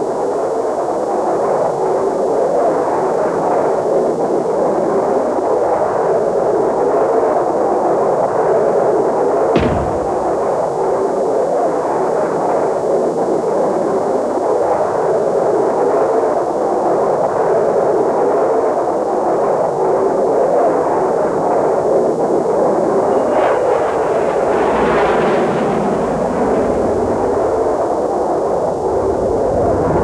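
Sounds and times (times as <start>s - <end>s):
jet engine roar in flight: 21.0s - 30.0s.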